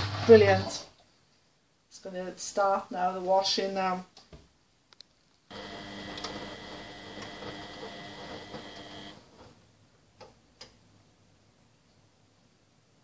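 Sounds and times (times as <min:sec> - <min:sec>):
washing machine running: 0:00.0 - 0:00.8, 0:05.5 - 0:09.4.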